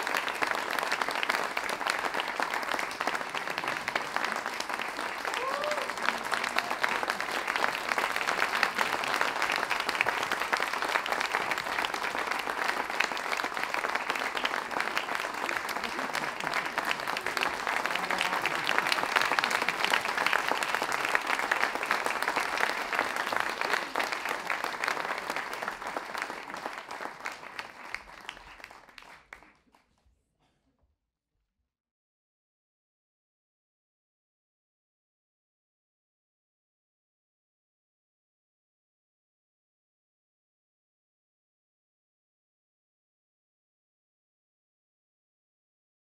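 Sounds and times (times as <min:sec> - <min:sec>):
audience applause: 0:00.0 - 0:29.8.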